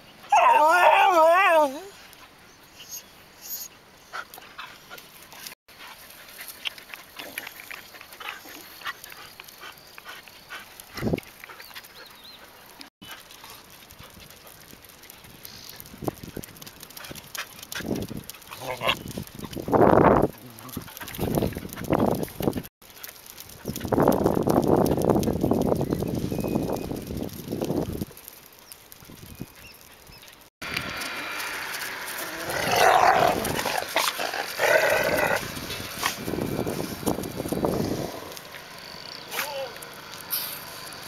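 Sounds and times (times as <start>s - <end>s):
dog whining: 0.3s - 2.0s.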